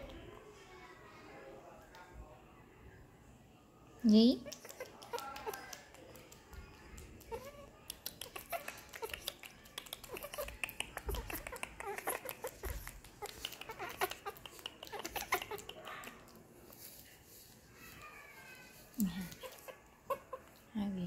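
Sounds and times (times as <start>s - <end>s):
baby monkey squeaking: 4.4s - 16.2s, 19.2s - 20.6s.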